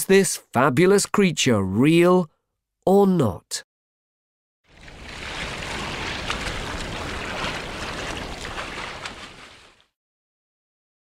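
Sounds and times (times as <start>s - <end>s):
churning splashing water: 4.7s - 10.0s.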